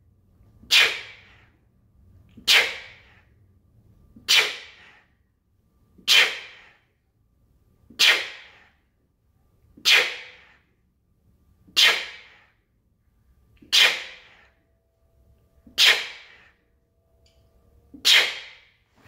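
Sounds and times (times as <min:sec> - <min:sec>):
sharp forceful exhales: 0:00.7 - 0:01.6, 0:02.5 - 0:03.3, 0:04.3 - 0:05.1, 0:06.1 - 0:06.9, 0:15.8 - 0:16.6.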